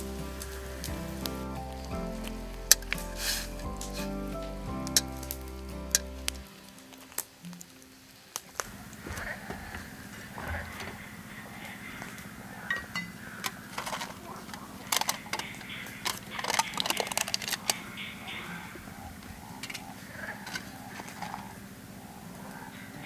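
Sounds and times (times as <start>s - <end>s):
lid clicking and crinkling: 12.7s - 17.9s, 19.6s - 21.5s.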